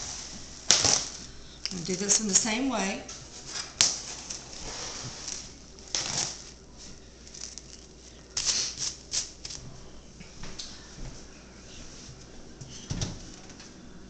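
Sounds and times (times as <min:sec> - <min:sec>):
plastic wrap crinkling: 0:00.0 - 0:02.4, 0:03.2 - 0:10.0.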